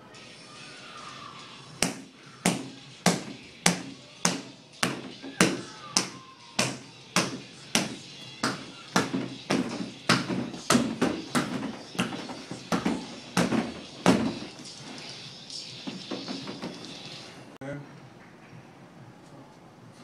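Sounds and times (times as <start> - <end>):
hand strikes on rubber dummy: 1.8 - 14.6.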